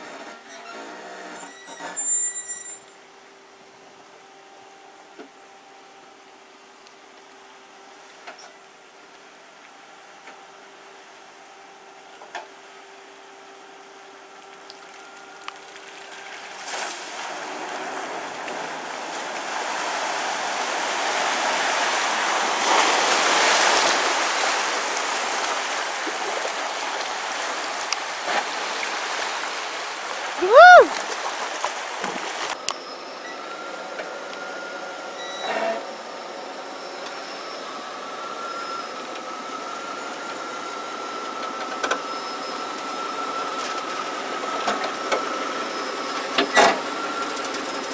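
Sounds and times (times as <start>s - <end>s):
engine running low and steady: 0.0s - 30.4s, 31.1s - 47.9s
water rushing and splashing: 14.3s - 32.6s.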